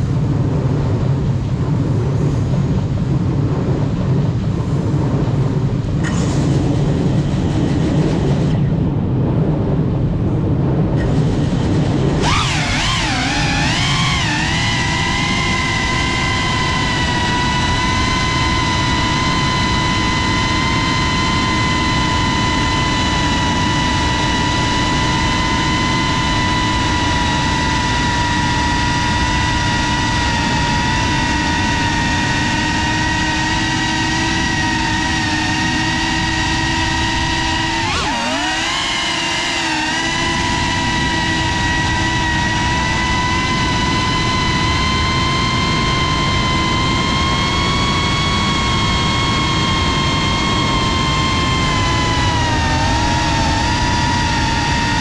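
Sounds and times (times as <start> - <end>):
rushing noise: 0.0 - 55.0
drone motors whining: 4.6 - 9.4, 10.4 - 55.0.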